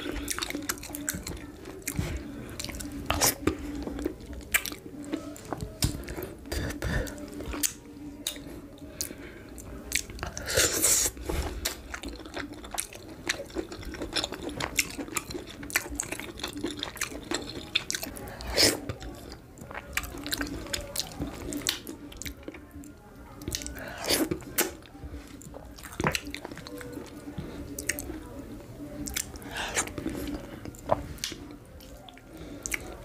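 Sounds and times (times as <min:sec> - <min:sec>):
wet chewing and lip smacks: 0:02.6 - 0:06.0, 0:11.6 - 0:22.6.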